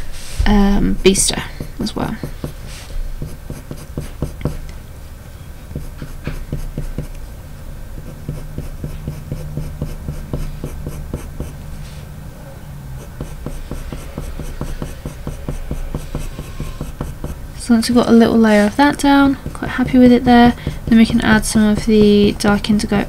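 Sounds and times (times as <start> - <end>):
coloured pencil scratching on paper: 1.6 - 4.6, 5.7 - 7.2, 8.0 - 11.6, 13.0 - 17.4, 18.0 - 23.0.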